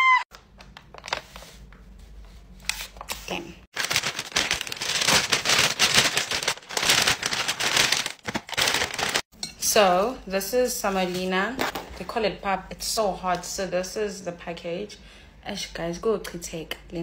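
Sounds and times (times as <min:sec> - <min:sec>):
paper bag crinkling: 0:03.7 - 0:09.3.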